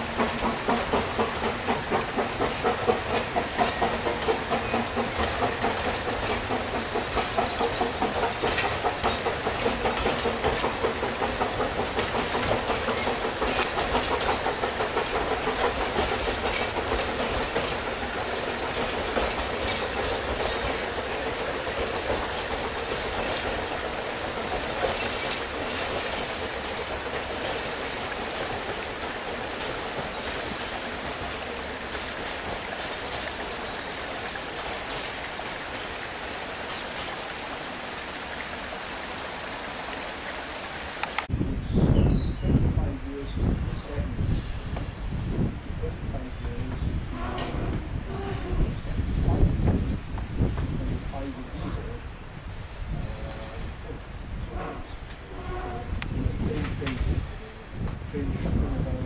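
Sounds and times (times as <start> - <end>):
steam train wheels clattering: 0.0 - 41.3, 42.3 - 59.0
stream water rushing: 7.4 - 41.3.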